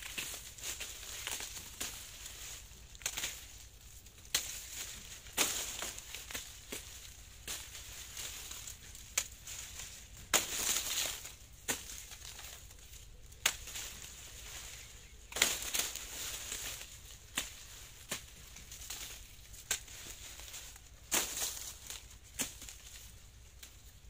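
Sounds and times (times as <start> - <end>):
dry leaves rustling: 0.0 - 24.0
machete chopping sugarcane: 3.0 - 3.6, 4.2 - 12.6, 13.4 - 14.1, 15.3 - 23.0.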